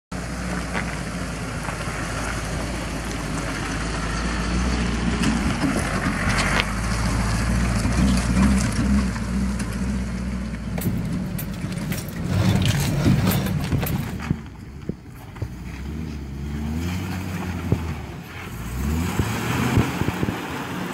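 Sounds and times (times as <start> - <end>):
truck engine hum: 0.1 - 20.9
tyre and road noise: 0.1 - 20.9
sharp clicks and rattles: 10.5 - 15.5.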